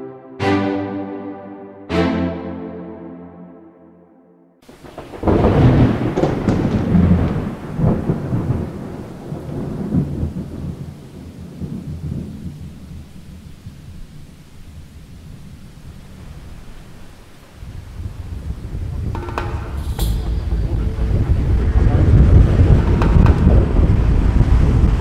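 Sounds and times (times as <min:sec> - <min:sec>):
steady rain: 0:04.6 - 0:25.0
thunder rumbling: 0:04.7 - 0:14.1, 0:14.8 - 0:25.0.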